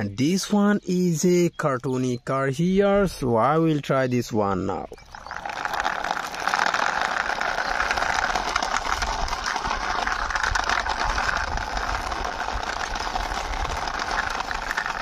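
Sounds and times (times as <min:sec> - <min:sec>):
toy car wheels rolling on concrete: 0:04.5 - 0:15.0.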